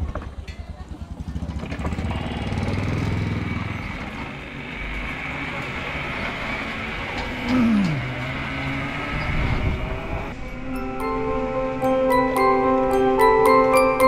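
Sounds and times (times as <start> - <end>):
vehicle hum with road noise: 0.0 - 10.6
motor passing by: 0.9 - 10.7.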